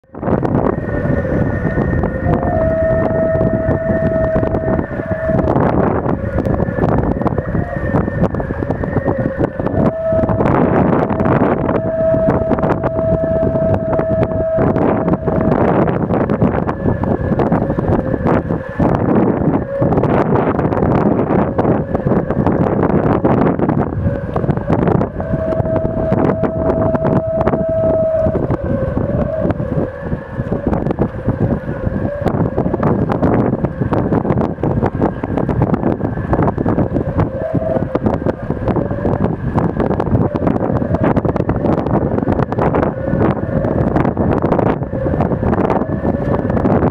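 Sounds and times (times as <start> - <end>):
wind buffeting microphone: 0.0 - 46.9
wind whistling in rigging: 0.0 - 46.9.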